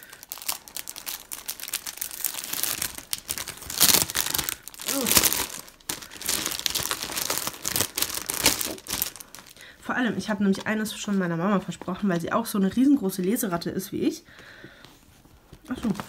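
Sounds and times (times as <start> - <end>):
plastic packaging crinkling: 0.0 - 12.3.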